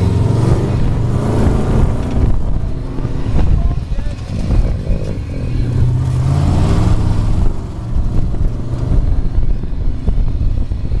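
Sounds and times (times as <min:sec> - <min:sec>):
dune buggy engine running: 0:00.0 - 0:11.0.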